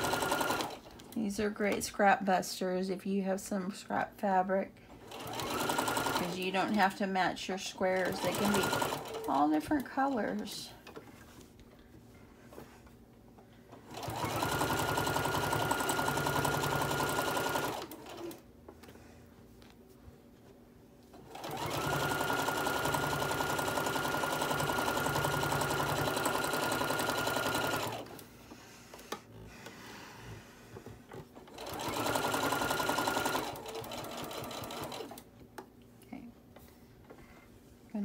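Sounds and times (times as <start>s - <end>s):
sewing machine stitching: 0.0s - 1.2s, 5.0s - 6.9s, 7.8s - 11.0s, 13.8s - 18.4s, 21.2s - 28.2s, 31.4s - 35.3s.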